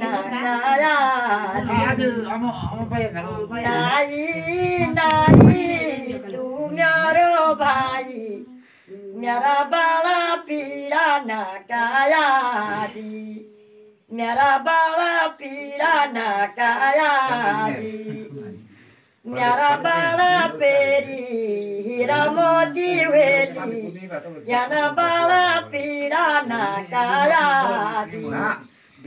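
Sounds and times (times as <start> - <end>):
women singing unaccompanied: 0.0 - 28.8
loud thump: 4.9 - 5.8.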